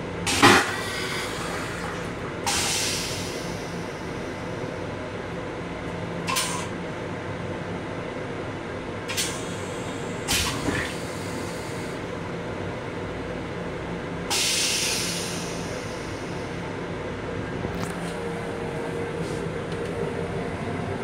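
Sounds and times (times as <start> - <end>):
railcar running rumble: 0.0 - 21.0
air hissing: 14.3 - 16.2.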